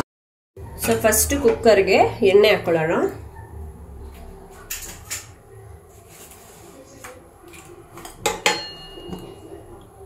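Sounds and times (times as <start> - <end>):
steel kitchenware clinking: 0.8 - 1.8, 7.5 - 9.6.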